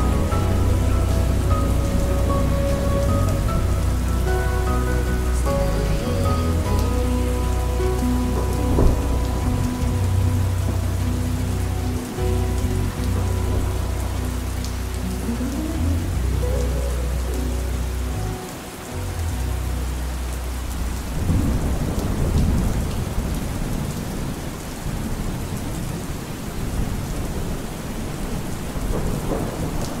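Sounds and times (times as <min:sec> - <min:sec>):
thunder rumbling: 0:00.0 - 0:18.4, 0:19.4 - 0:30.0
slowed-down song low notes: 0:00.0 - 0:23.8
steady rain hissing: 0:00.0 - 0:30.0.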